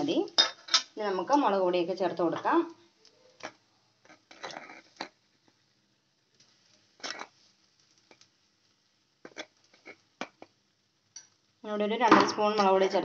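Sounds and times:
powder rustling into pan: 0:02.8 - 0:10.8.

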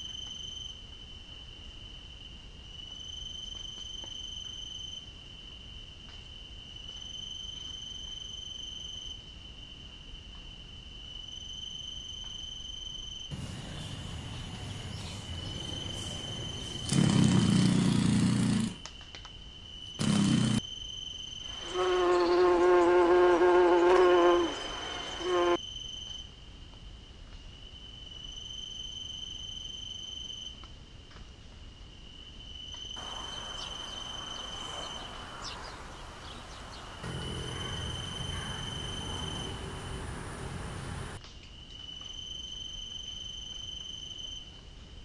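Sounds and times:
cricket-like chirring: 0:10.9 - 0:18.1, 0:19.4 - 0:26.3, 0:32.5 - 0:44.4
flying insect buzzing: 0:20.0 - 0:20.6, 0:21.5 - 0:25.6, 0:33.0 - 0:41.2.

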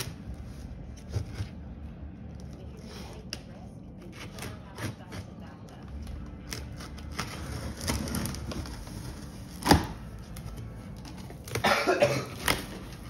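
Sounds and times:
knife cutting packing tape: 0:06.5 - 0:10.0.

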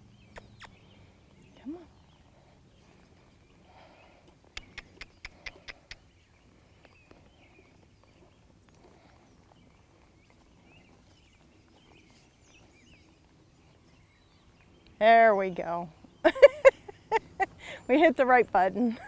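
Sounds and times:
faint bird chirps: 0:00.1 - 0:08.5
tongue clicks: 0:00.3 - 0:00.8, 0:04.5 - 0:06.0.

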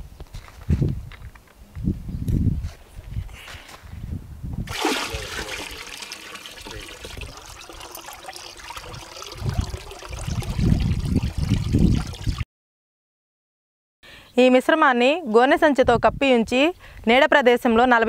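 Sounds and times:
liquid pouring and splashing: 0:04.7 - 0:12.4
stick stirring liquid: 0:04.7 - 0:12.4.

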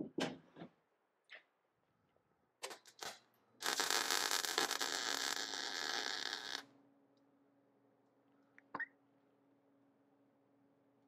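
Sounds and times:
welder arc crackling hiss: 0:02.8 - 0:06.7.

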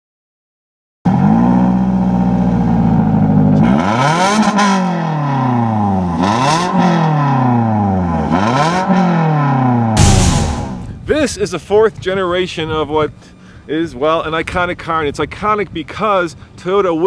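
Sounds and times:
car engine idling and revving: 0:01.1 - 0:11.0.

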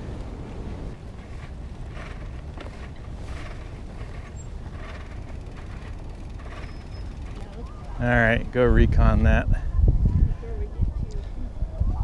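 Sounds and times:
soft crunching: 0:00.0 - 0:08.0
wind on microphone: 0:00.0 - 0:12.0.

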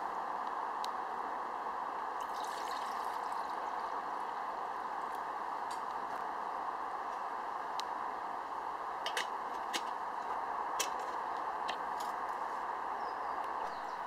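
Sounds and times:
wood fire crackling: 0:01.8 - 0:12.8.

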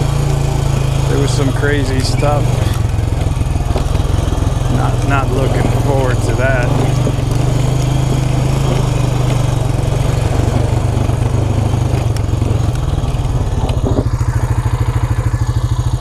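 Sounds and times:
small vehicle engine idling: 0:00.0 - 0:16.0.

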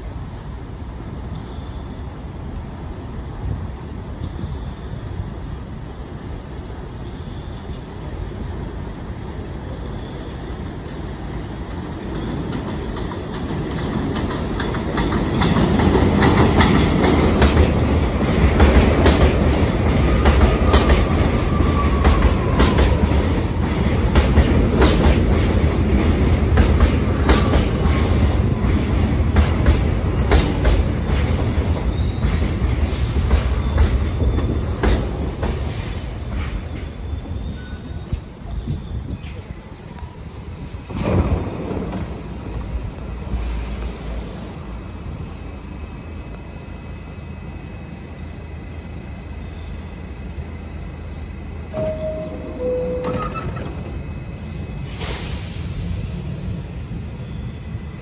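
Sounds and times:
subway train rumble: 0:00.0 - 0:58.0
wheels clacking over rail joints: 0:12.2 - 0:35.7
wheel squeal: 0:31.9 - 0:39.4.

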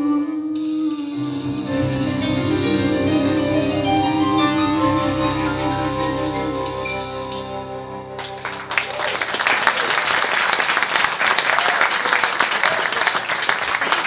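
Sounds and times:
live band chord: 0:00.6 - 0:09.7
audience applause: 0:08.2 - 0:14.0.

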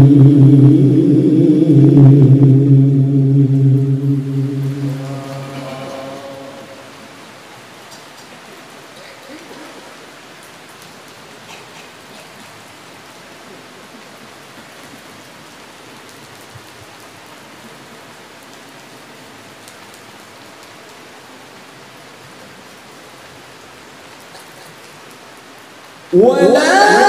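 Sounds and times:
low murmur: 0:00.0 - 0:07.4
steady background hiss: 0:00.0 - 0:27.0.

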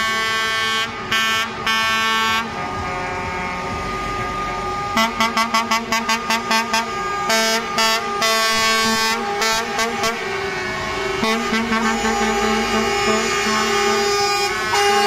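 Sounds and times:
truck air horns: 0:00.0 - 0:15.0.

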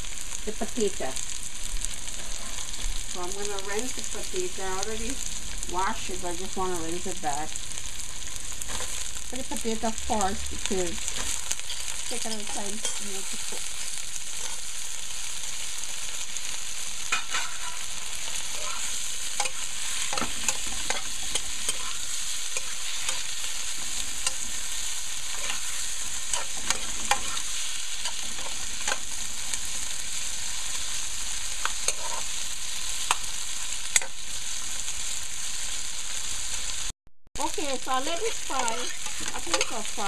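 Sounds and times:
potatoes sizzling in hot oil: 0:00.0 - 0:40.0
metal spoon scraping pan: 0:11.0 - 0:13.7, 0:17.1 - 0:29.6, 0:31.6 - 0:32.4, 0:38.2 - 0:40.0.

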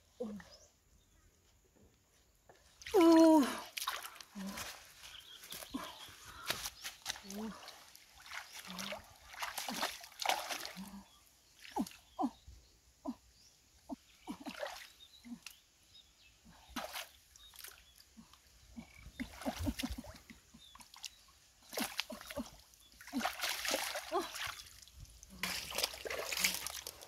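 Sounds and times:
hands splashing in water: 0:08.2 - 0:10.9, 0:21.7 - 0:27.0.

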